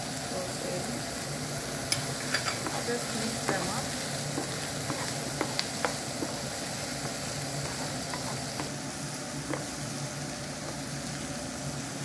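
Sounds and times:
onion and garlic sizzling in oil: 0.0 - 12.0
wooden spoon scraping a pan: 1.9 - 8.8.

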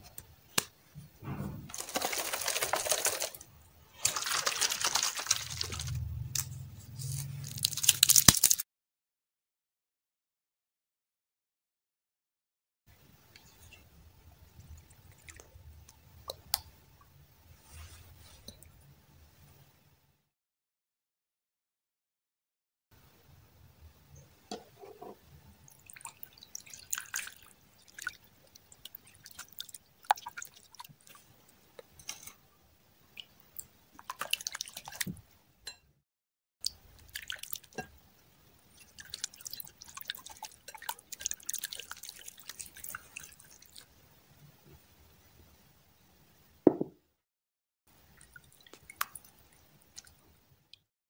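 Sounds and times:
slime squelching: 1.7 - 8.6, 25.9 - 32.3, 33.2 - 35.2, 36.6 - 37.9, 38.6 - 43.9.

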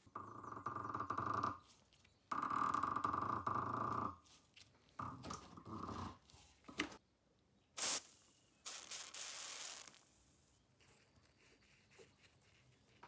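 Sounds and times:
hiss: 7.8 - 10.0.

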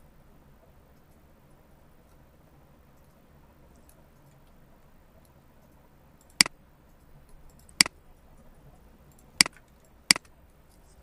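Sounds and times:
computer mouse clicks: 2.9 - 4.6, 5.2 - 11.0.

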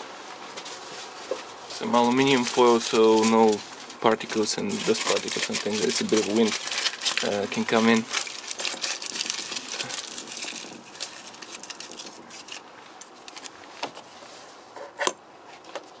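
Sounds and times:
aluminium foil crinkling: 0.6 - 13.8.

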